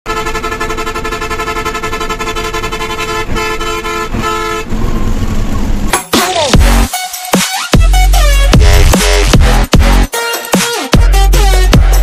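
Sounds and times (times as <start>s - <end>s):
engine and road rumble: 0.0s - 6.9s, 7.8s - 10.1s
bus horn blaring chord: 0.1s - 4.8s, 9.8s - 11.8s.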